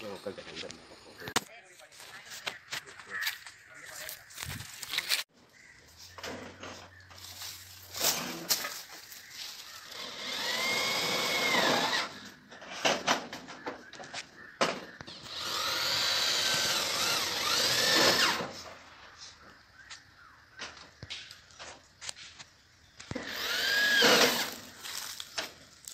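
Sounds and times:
power drill driving screws into metal: 9.9 - 13.2, 15.1 - 18.6, 23.1 - 24.7.

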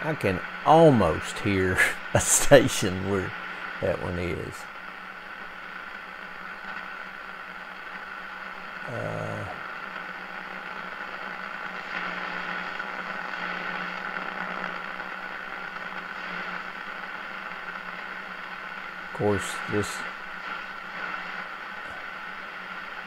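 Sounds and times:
radio static and hiss: 0.0 - 23.0.

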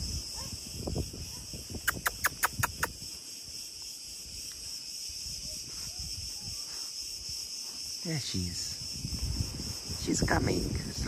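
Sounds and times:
insects buzzing: 0.0 - 11.0
sharp clicking calls: 1.7 - 3.0.

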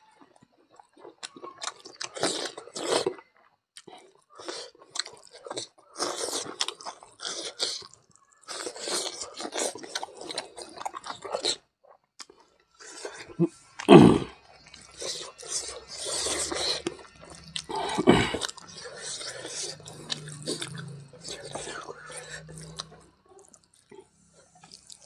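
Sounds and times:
wet chewing: 0.2 - 25.0.

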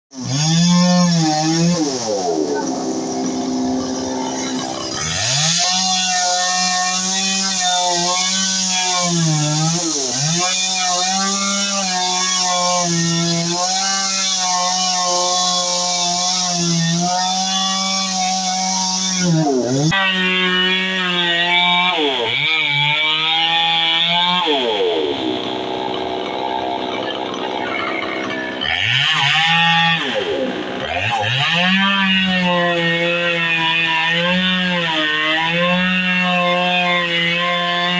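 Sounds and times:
chainsaw cutting tree trunk: 0.1 - 37.9.

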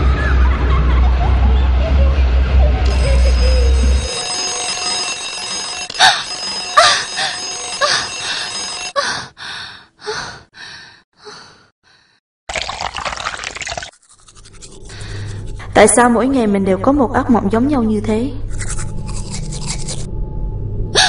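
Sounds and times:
alarm clock ringing: 2.9 - 9.3.

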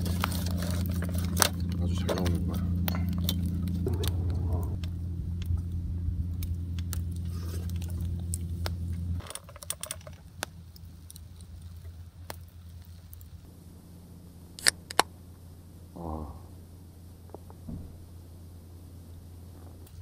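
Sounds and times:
steady low hum: 0.0 - 20.0
wood fire crackling: 0.0 - 20.0.

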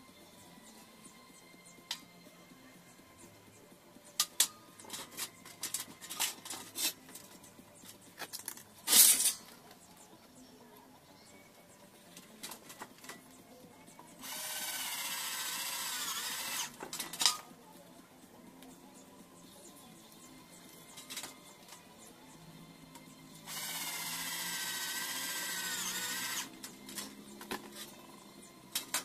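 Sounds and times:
metal parts clicking: 4.2 - 7.3, 8.2 - 9.6
metal clank: 8.9 - 9.6
cordless drill into metal: 14.2 - 16.8, 23.5 - 26.6.

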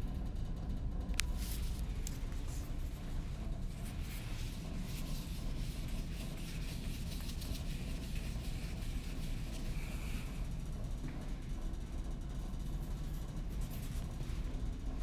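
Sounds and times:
low rumble from phone handling: 1.1 - 10.4
hand rubbing on whiteboard: 1.4 - 10.5.

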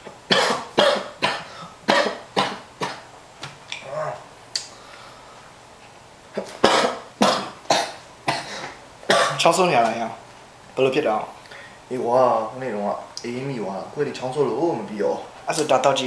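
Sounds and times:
man coughing: 0.3 - 3.0, 6.4 - 9.5.

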